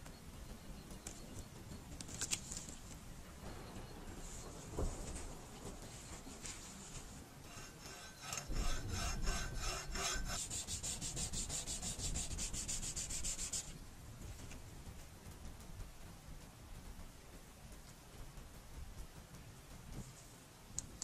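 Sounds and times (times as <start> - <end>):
sanding on sandpaper: 6.8 - 13.8
hacksaw cutting: 7.5 - 13.4.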